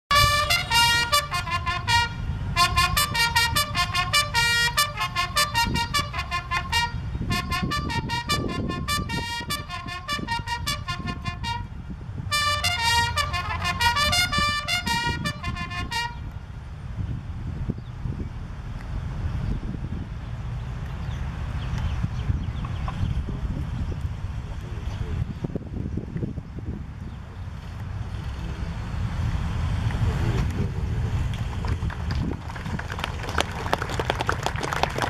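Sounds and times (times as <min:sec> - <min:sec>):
military bugle call: 0:00.1 - 0:16.3.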